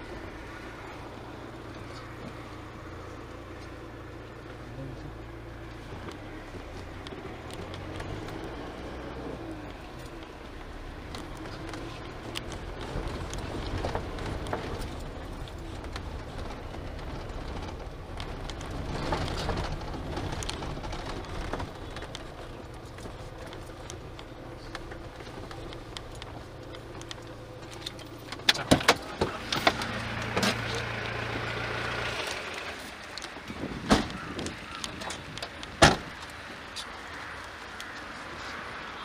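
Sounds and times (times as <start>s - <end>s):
engine and road noise in car: 0.0s - 39.0s.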